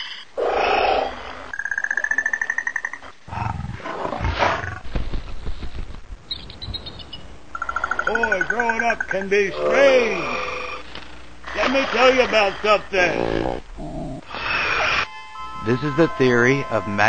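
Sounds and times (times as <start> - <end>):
low rumbling: 12.3 - 14.3.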